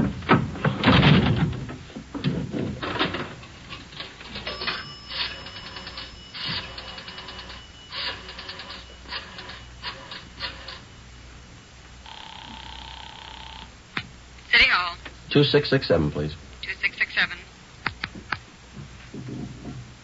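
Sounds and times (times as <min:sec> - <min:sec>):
thin steady tone: 0:04.3 - 0:13.7.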